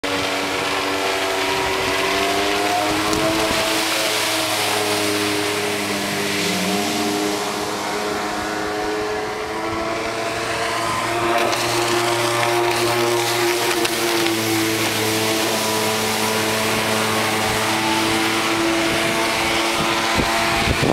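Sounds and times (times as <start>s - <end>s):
water rushing hiss: 0.0s - 20.9s
watercraft engine drone: 0.0s - 20.9s.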